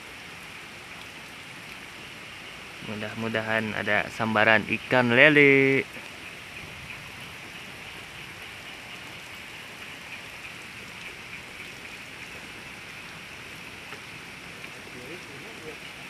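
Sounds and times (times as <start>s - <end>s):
steady hiss of water: 0.0s - 16.0s
faint light ticks: 13.8s - 14.8s.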